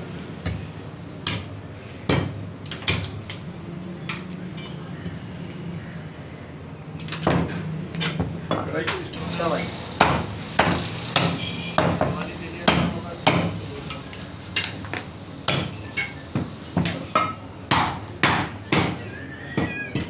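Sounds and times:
cleaver chopping meat on wood: 10.0s - 13.6s, 15.4s - 19.1s.

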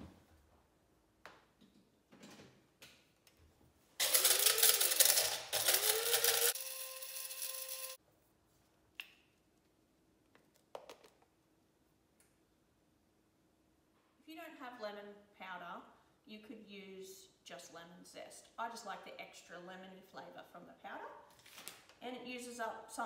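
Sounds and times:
electric grinder whirring: 4.0s - 8.0s.

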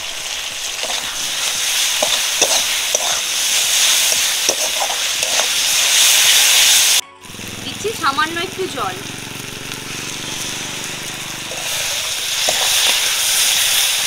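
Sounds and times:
vegetables sizzling in hot oil: 0.0s - 14.0s
metal spatula scraping pan: 0.8s - 6.7s, 9.9s - 14.0s.

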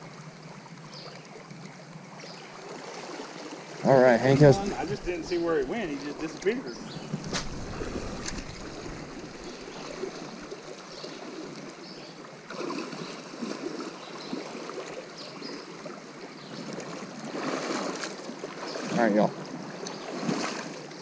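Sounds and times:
creek water splashing around legs: 0.0s - 21.0s.

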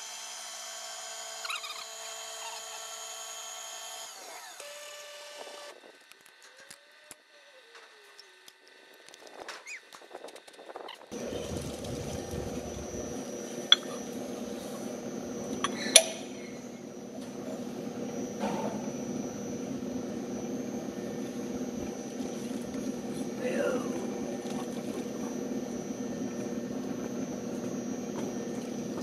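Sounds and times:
steady machine hum: 11.1s - 29.0s.

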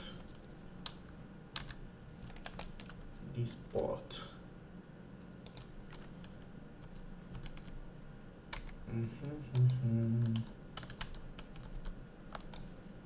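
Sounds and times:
keyboard and mouse clicking: 0.8s - 3.1s, 5.4s - 7.8s, 8.5s - 12.7s
low murmured voice: 8.9s - 10.5s.

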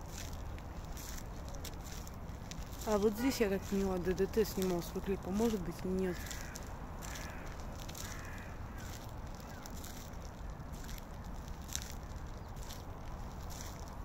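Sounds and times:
footsteps in wet snow: 0.0s - 14.0s
low outdoor rumble: 0.0s - 14.0s
crow calling harshly: 5.3s - 10.6s.

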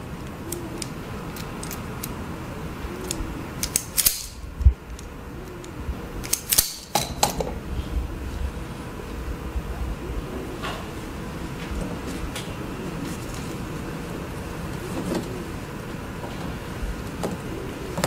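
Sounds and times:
wire stripper clicking: 0.2s - 2.2s, 3.0s - 7.4s.

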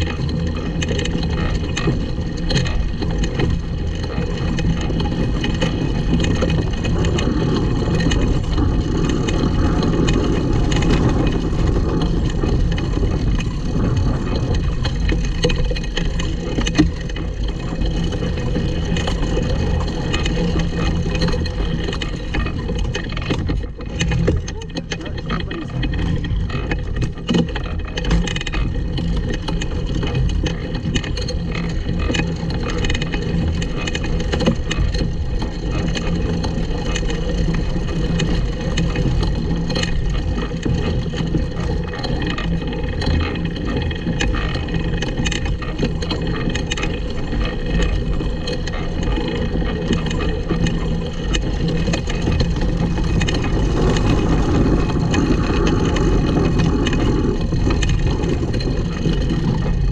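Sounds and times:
go-kart rumbling over grass: 0.0s - 59.9s.

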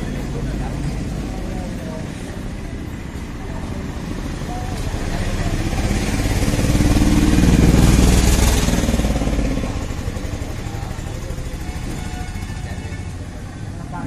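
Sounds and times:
motorcycle engine running: 3.8s - 14.0s.

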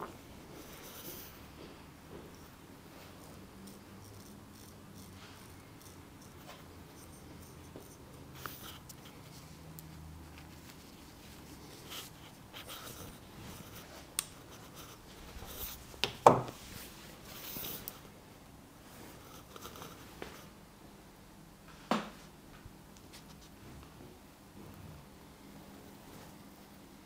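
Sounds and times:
razor scraping and rustling: 2.3s - 18.1s, 18.9s - 20.5s.

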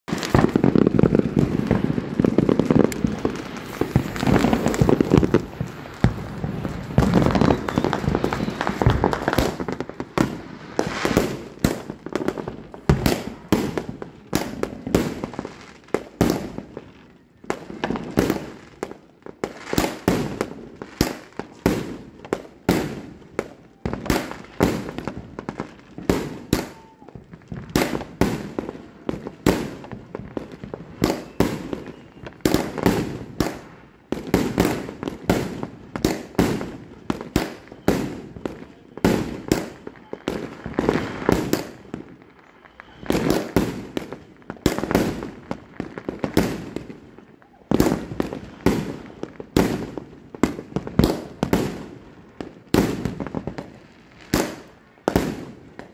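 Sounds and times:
firework cake bangs: 0.1s - 15.4s.

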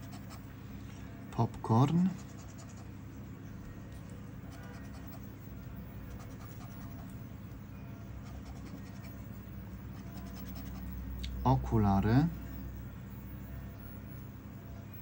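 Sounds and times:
steady low hum: 0.0s - 15.0s
lottery ticket being scratched: 6.0s - 7.2s, 8.1s - 11.0s.

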